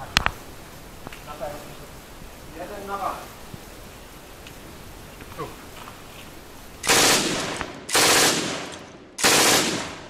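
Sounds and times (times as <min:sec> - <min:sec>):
machine gun fire: 0:06.8 - 0:10.0.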